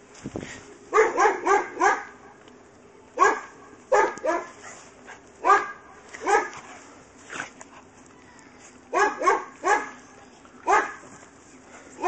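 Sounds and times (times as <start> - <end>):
dog barking: 0.9 - 2.2, 3.2 - 4.6, 5.4 - 6.6, 8.9 - 10.0, 10.6 - 11.1.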